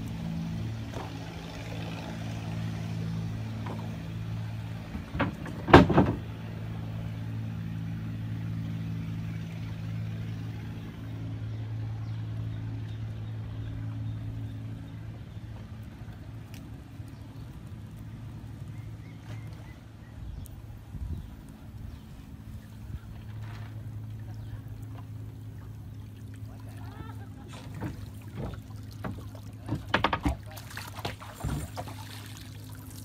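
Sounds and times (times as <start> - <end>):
boat engine running: 0.0 - 33.0.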